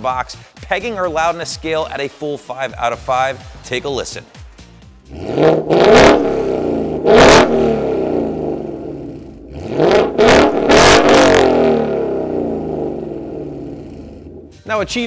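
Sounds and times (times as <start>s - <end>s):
car engine revving: 5.0s - 14.6s.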